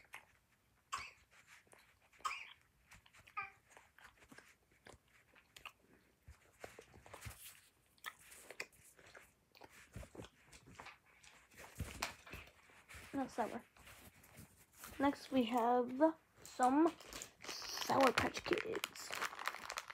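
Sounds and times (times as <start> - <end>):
chewing candy: 0.0 - 0.5, 1.5 - 11.5, 17.0 - 19.9.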